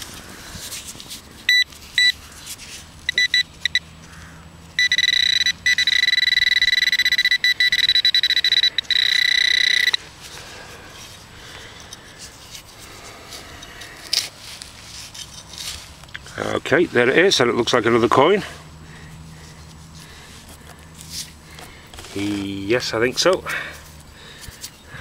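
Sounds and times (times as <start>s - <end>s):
metal detector probe beeping: 1.5s - 2.2s, 3.1s - 3.9s, 4.8s - 10.1s.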